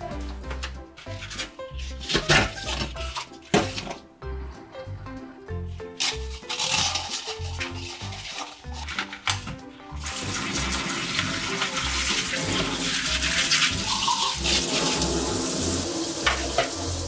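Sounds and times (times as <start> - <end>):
glass cup being rinsed: 10.0 - 17.0
tap running into steel sink: 16.2 - 16.8.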